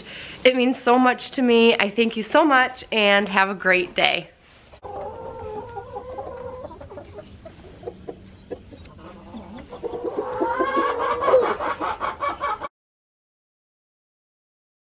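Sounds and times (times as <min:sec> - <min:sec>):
chickens clucking: 0:04.6 - 0:12.7.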